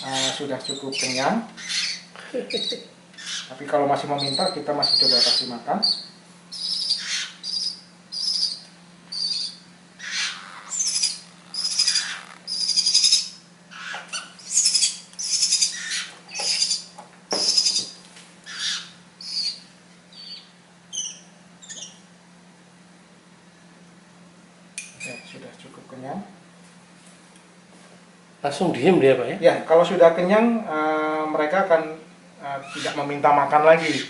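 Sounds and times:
nestlings begging calls: 0:00.0 - 0:22.1, 0:32.4 - 0:34.0.

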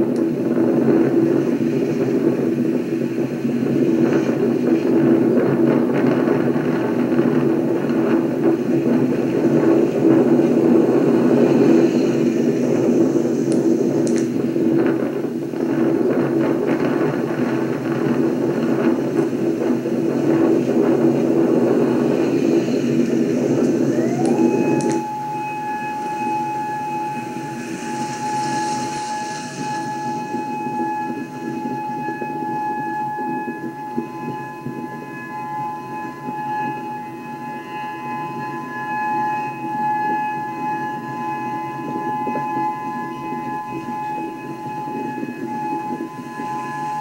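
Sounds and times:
storm wind rumble: 0:00.0 - 0:47.0
rising tone: 0:23.6 - 0:31.8.

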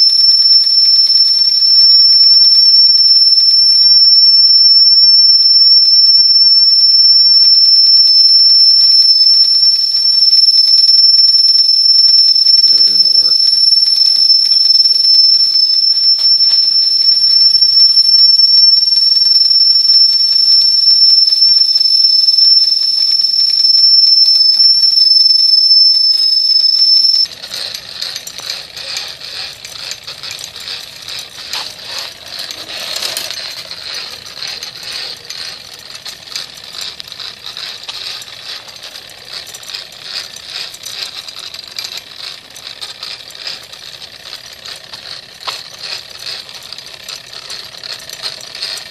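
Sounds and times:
high-pitched steam whistle: 0:00.0 - 0:48.9
small steam engine rattling: 0:00.0 - 0:48.9.

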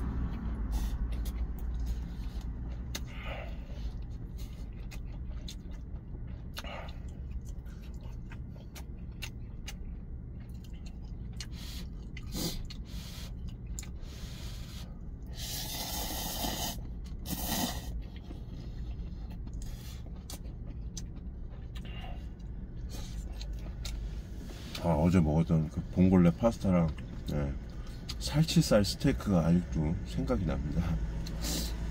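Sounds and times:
steady low hum: 0:00.0 - 0:31.9
chewing clicks: 0:03.9 - 0:12.8, 0:13.4 - 0:14.0, 0:18.0 - 0:24.1
person slurping noodles: 0:15.3 - 0:18.0.

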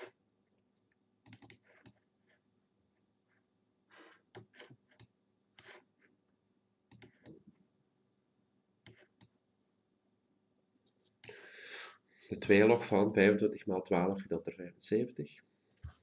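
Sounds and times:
mouse and keyboard clicks: 0:06.9 - 0:07.4.

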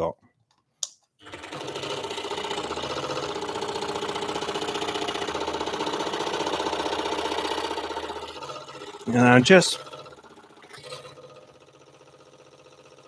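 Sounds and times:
scroll saw running: 0:01.2 - 0:13.0.

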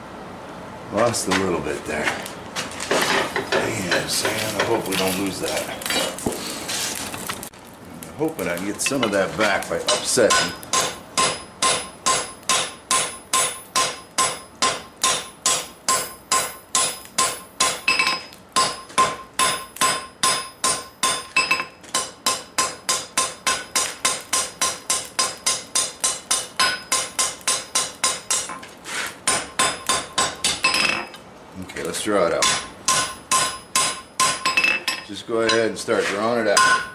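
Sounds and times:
hammer striking hot steel: 0:02.9 - 0:06.6, 0:08.2 - 0:31.2, 0:31.8 - 0:36.9
anvil ringing: 0:09.9 - 0:28.5, 0:32.4 - 0:35.7, 0:36.6 - 0:36.9.

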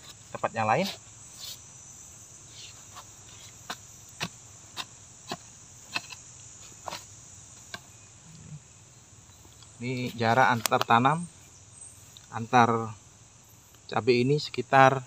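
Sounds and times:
high drone of insects: 0:00.0 - 0:15.0
hoe chopping into dry soil: 0:02.9 - 0:07.8.

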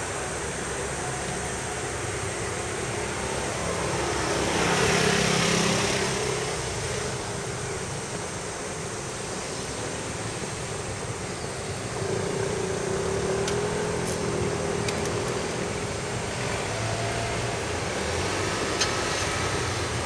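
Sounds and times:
vehicle passing by: 0:03.1 - 0:07.0, 0:12.0 - 0:20.0.

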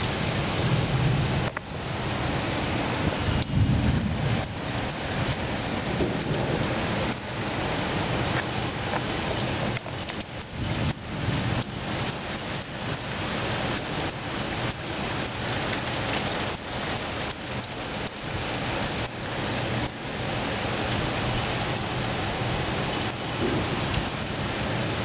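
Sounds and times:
heavy rain pouring: 0:00.0 - 0:25.0.

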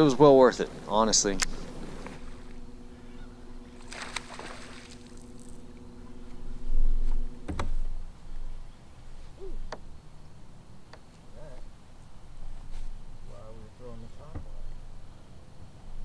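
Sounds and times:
trolling motor hum: 0:00.0 - 0:16.0
fishing line whirring off reel: 0:01.4 - 0:06.5
faint short calls: 0:01.5 - 0:06.4.

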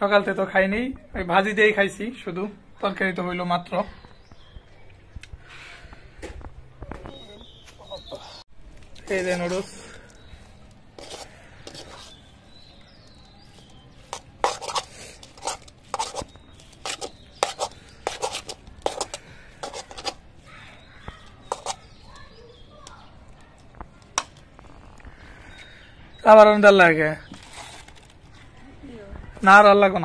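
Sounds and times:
metal spatula scraping iron pan: 0:11.0 - 0:12.3, 0:14.0 - 0:20.2, 0:21.4 - 0:22.0.

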